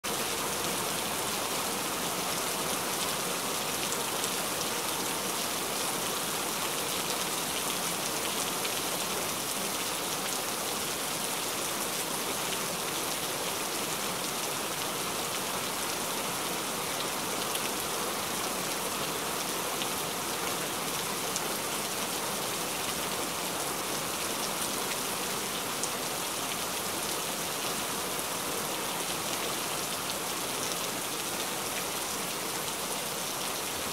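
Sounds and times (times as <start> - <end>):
steady rain hiss: 0.0 - 33.9.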